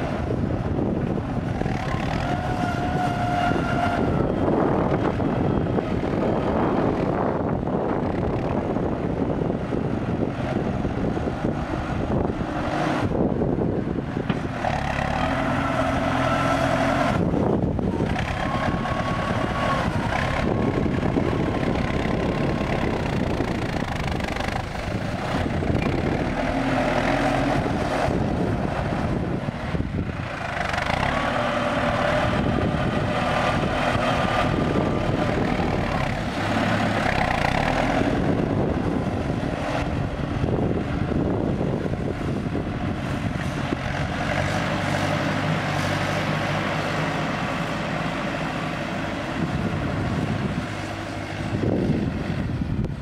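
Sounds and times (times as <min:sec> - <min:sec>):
tractor diesel engine under load: 0:00.0 - 0:53.0
blade pushing soil: 0:14.2 - 0:41.2.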